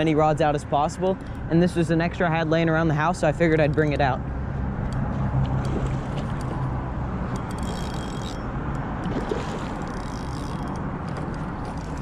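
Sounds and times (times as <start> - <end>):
fish splashing at surface: 9.0 - 10.2.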